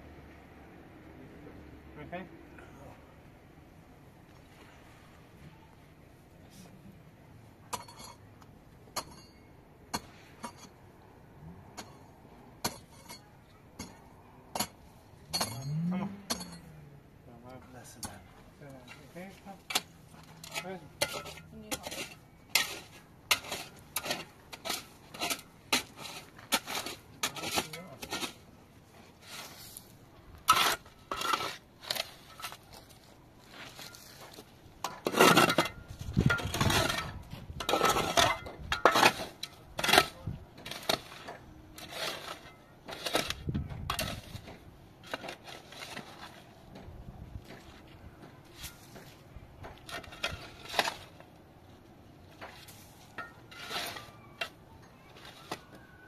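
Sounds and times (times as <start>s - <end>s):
shovel scraping gravelly soil: 17.8s - 46.7s, 48.5s - 56.0s.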